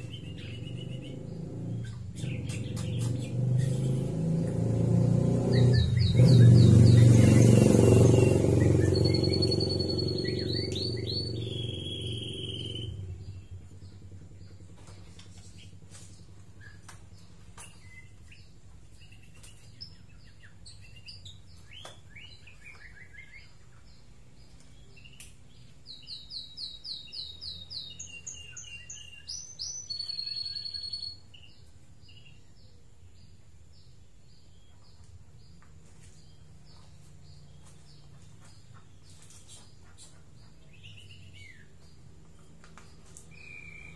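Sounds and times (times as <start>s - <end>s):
bird singing whistles and chirps: 0.0s - 4.2s, 5.4s - 14.0s, 17.6s - 23.9s, 24.8s - 32.7s, 39.0s - 42.0s, 42.8s - 43.9s.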